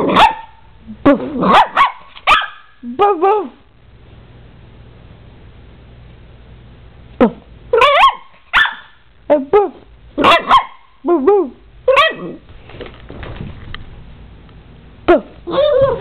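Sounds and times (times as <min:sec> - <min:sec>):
dog yipping and yowling: 0:01.4 - 0:02.7, 0:07.7 - 0:08.9, 0:10.2 - 0:10.8, 0:11.9 - 0:12.4, 0:15.5 - 0:16.0.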